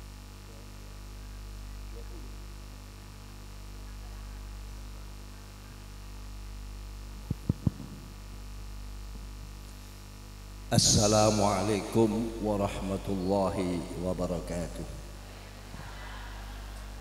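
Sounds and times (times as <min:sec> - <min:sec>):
electrical mains hum: 0:00.0 - 0:17.0
microphone handling thumps: 0:07.2 - 0:08.3.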